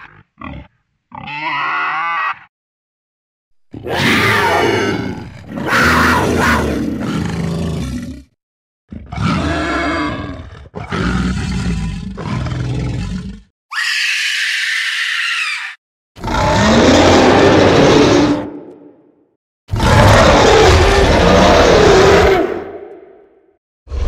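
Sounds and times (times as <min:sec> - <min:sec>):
monster roars and growls: 0:03.7 - 0:13.5, 0:16.2 - 0:24.0.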